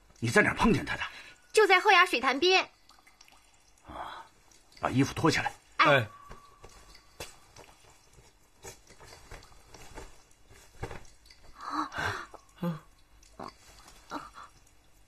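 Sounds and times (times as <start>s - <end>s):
cloth rustling: 5.5s - 11.6s
breathy gasps: 11.6s - 12.9s.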